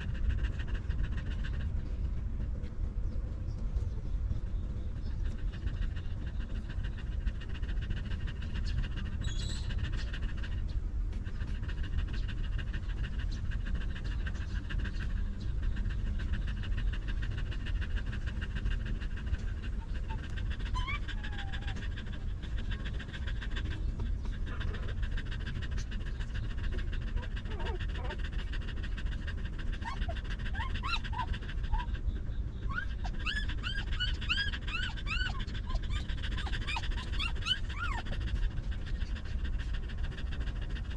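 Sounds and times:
dog panting: 0.0 - 40.9
low background rumble: 0.0 - 40.9
puppies squeaking: 19.7 - 22.8, 29.8 - 31.9, 32.6 - 38.2.

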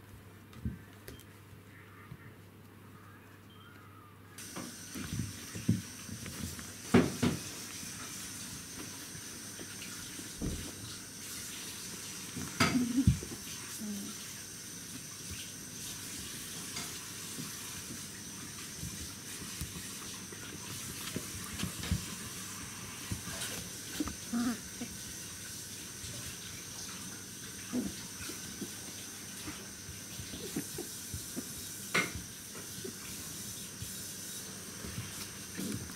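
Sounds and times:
puppies scuffling on wooden floor: 4.4 - 35.9
steady hiss: 4.4 - 35.9
puppy noises: 17.3 - 31.6, 32.5 - 35.9.

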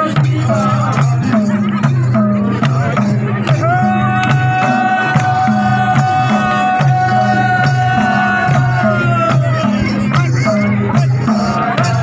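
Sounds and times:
hand drums beating: 0.0 - 12.0
person singing a long high note: 3.5 - 9.9.

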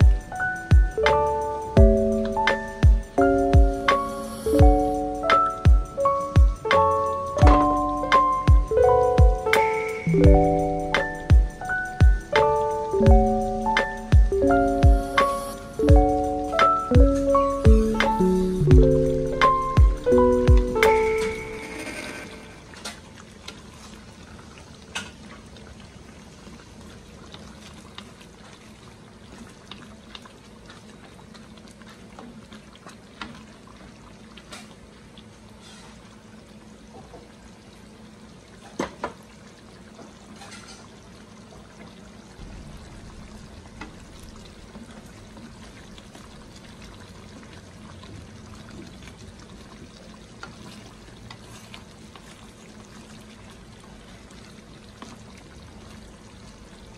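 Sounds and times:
low steady hum: 0.0 - 24.8, 41.4 - 56.9
sauce bubbling in a pan: 21.7 - 56.9.

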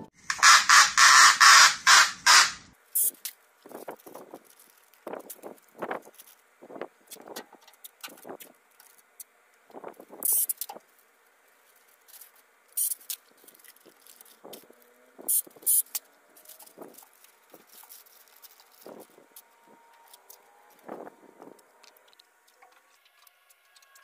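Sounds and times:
masking paper crinkling: 3.4 - 6.5, 10.8 - 14.9, 16.3 - 24.0.

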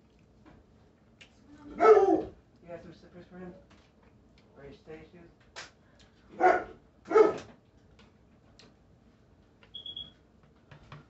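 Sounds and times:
dog barking: 1.7 - 2.4, 6.3 - 7.5.

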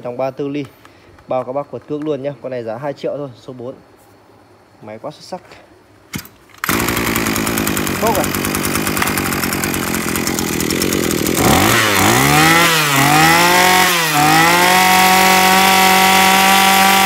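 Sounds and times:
brush cutter engine revving: 6.6 - 17.0.

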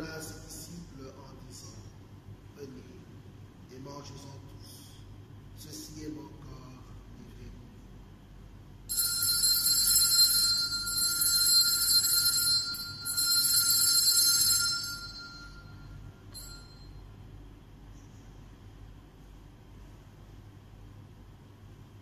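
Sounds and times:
altar bells ringing: 8.9 - 17.0.

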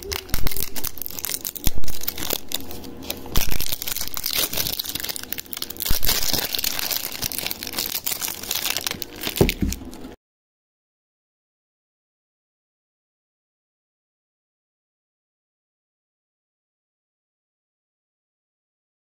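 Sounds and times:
plastic wrapping crinkling and tearing: 0.0 - 10.2.

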